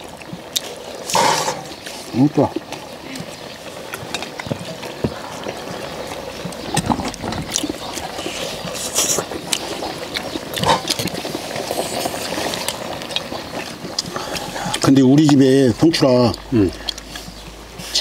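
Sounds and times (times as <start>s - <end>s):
chewing: 0.0s - 18.0s
slurping broth: 3.2s - 14.9s.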